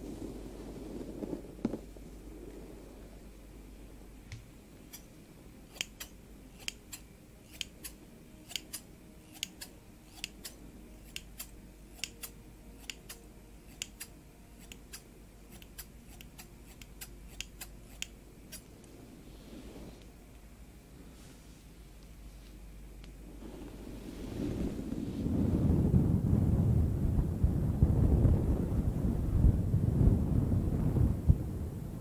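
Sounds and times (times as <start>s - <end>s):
metal scissors snipping hair: 5.7s - 18.7s.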